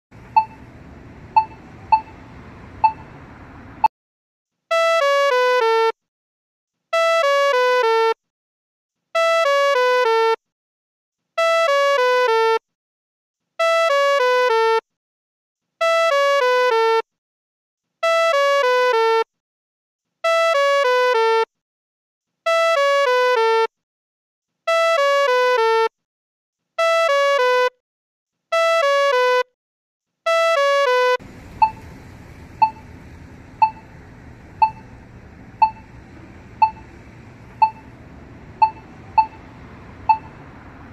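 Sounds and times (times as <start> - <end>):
pedestrian signal falling notes: 0.1 - 3.9, 30.9 - 40.9
pedestrian signal locator tick: 0.2 - 3.9, 31.2 - 40.9
low hiss: 31.2 - 40.5.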